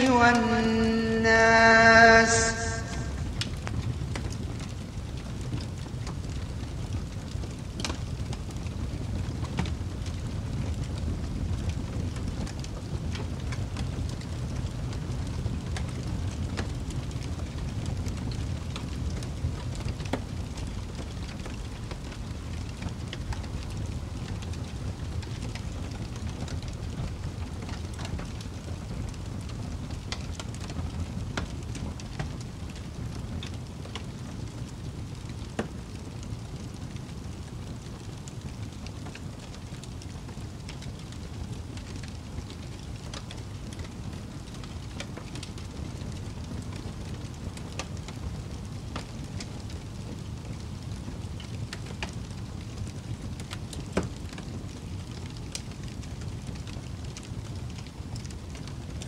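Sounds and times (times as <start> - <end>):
wood fire crackling: 0.0 - 59.0
low rumble: 0.6 - 3.7
burning logs popping: 3.2 - 59.0.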